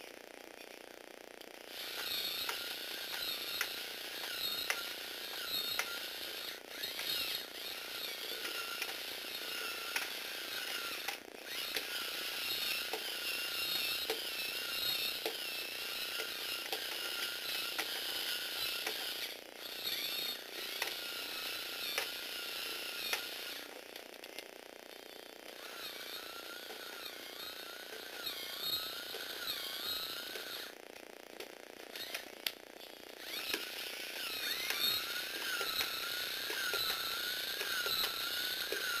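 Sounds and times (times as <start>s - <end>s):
small electric motor whine: 0.0s - 39.0s
plastic gears clattering: 33.2s - 39.0s.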